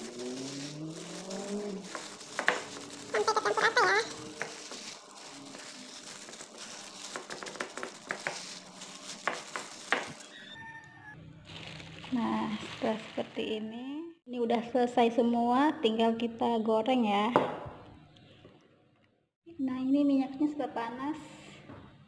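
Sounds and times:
breadcrumbs rustling and crunching: 0.0 - 10.3, 11.5 - 13.6
plastic glove crinkling: 0.0 - 10.8, 11.4 - 13.8
wavering pitched call: 10.2 - 11.2.

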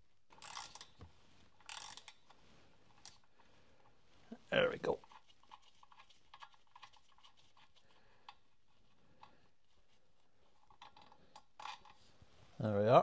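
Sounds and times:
small metallic clicks of nut: 0.3 - 3.3, 10.6 - 12.0.

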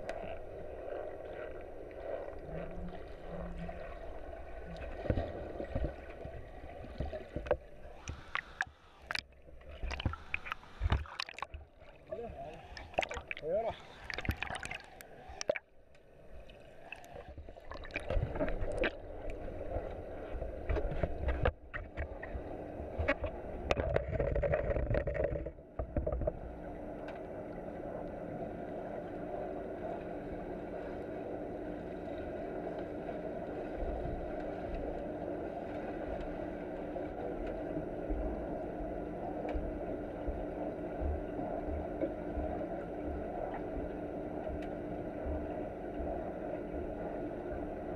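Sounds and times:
underwater drone with low hum: 0.0 - 47.9
water splashing and bubbling: 0.0 - 47.9.

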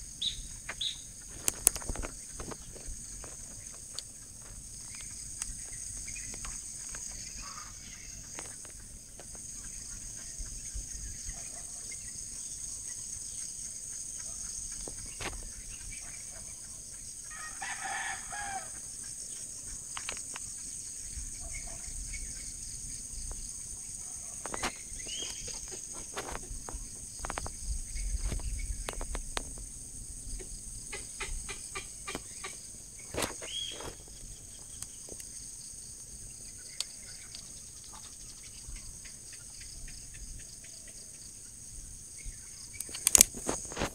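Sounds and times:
insects droning: 0.0 - 43.9
rooster crowing: 17.3 - 18.8.

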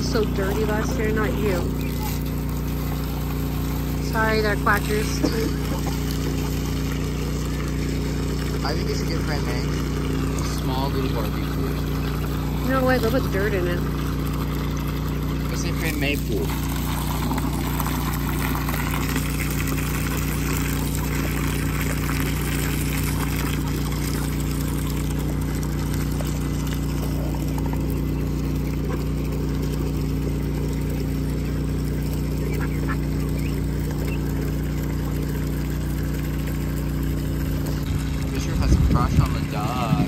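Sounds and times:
low engine-like hum: 0.0 - 40.0
ducks quacking: 31.3 - 34.3.

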